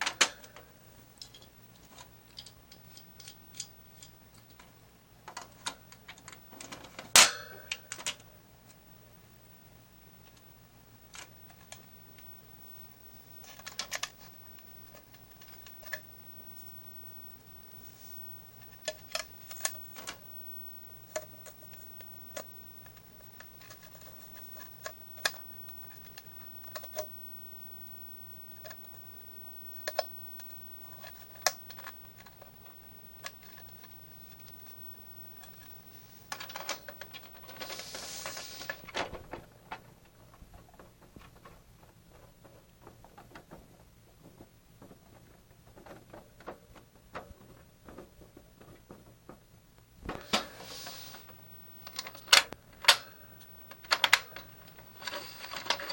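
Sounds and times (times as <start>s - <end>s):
plastic cage parts clicking: 0.0s - 4.7s, 5.3s - 8.3s, 13.4s - 16.1s, 18.6s - 20.3s, 20.9s - 27.1s, 29.7s - 34.8s, 35.4s - 43.7s, 51.8s - 55.9s
rustling scrape: 17.7s - 20.3s, 30.8s - 43.1s, 50.1s - 52.2s, 54.3s - 55.9s.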